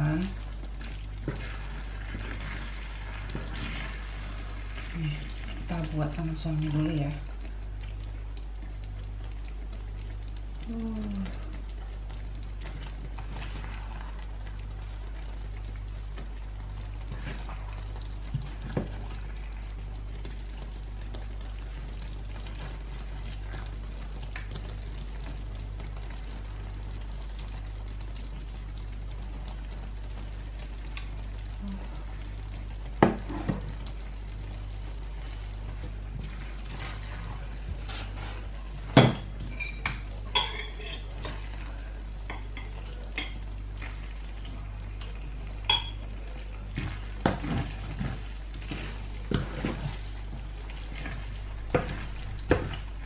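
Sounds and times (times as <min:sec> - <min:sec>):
steady low hum: 0:00.0 - 0:53.0
metal clinking on a pan: 0:39.5 - 0:41.1, 0:45.7 - 0:46.0
spatula scraping a pan: 0:47.1 - 0:50.1.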